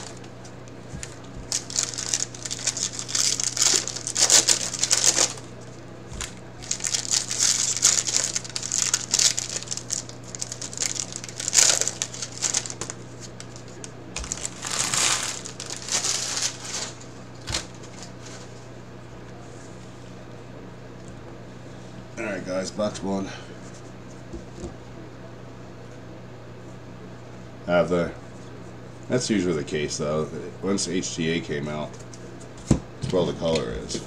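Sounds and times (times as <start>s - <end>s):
foil wrappers crinkling and tearing: 0.0s - 18.5s
steady low hum: 0.0s - 34.0s.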